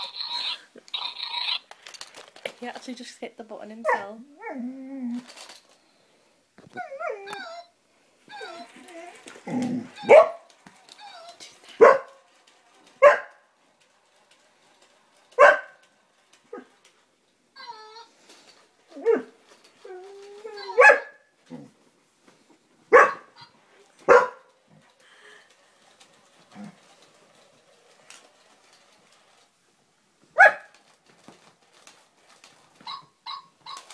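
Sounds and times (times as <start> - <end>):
faint clicks and rustles: 0.0 - 4.1, 4.8 - 33.9
dog barking: 11.8 - 12.2, 20.8 - 21.2, 22.9 - 23.3, 24.1 - 24.5, 30.4 - 30.7.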